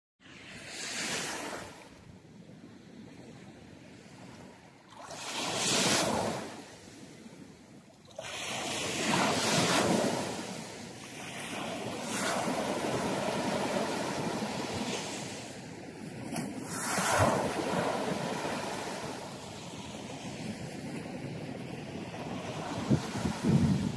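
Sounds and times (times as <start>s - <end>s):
small waves breaking on beach: 0.2s - 23.9s.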